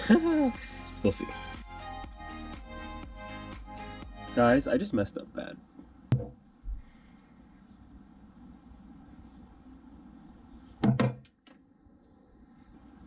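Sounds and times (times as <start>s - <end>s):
crickets trilling: 0.0s - 13.0s
short low thump: 6.1s - 6.8s.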